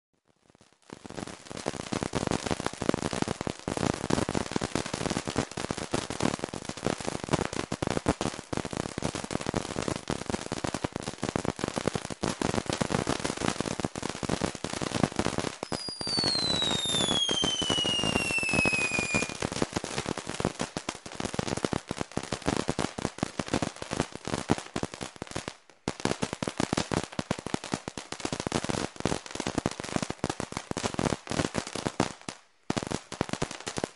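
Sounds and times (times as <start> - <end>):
firework sparks crackling: 0.9 - 33.9
descending firework whistle: 15.6 - 19.4.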